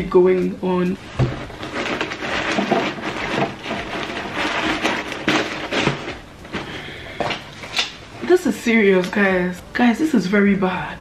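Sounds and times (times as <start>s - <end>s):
packing material crinkling: 1.0s - 8.0s.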